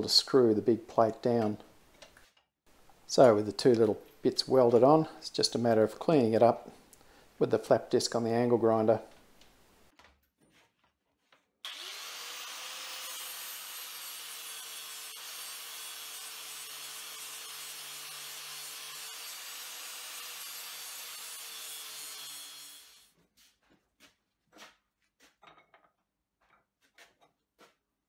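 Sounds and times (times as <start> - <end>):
angle grinder grinding steel: 11.7 - 23.1.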